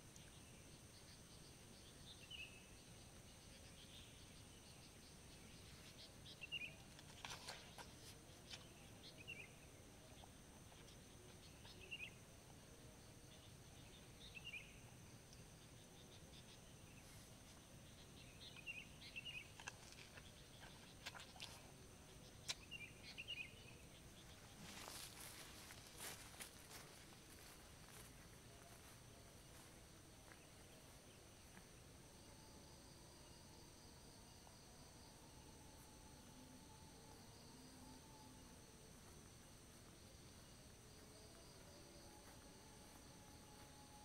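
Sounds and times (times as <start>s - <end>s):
bird chirping: 0.1s - 12.2s, 13.0s - 29.7s
high insect drone: 8.6s - 44.0s.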